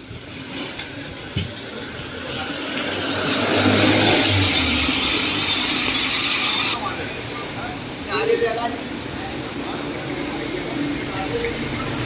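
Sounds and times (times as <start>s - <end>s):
car engine hum: 0.8s - 8.0s
tyre hiss on wet road: 1.5s - 7.2s.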